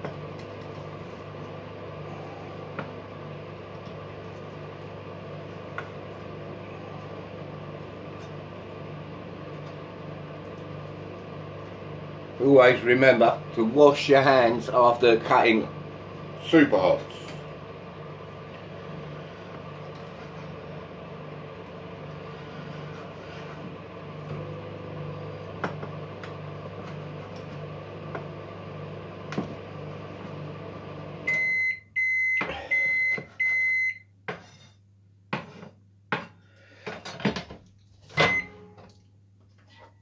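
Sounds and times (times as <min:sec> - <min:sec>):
microwave oven humming: 0:00.0 - 0:40.0
microwave beeps: 0:31.2 - 0:34.1, 0:38.2 - 0:38.8.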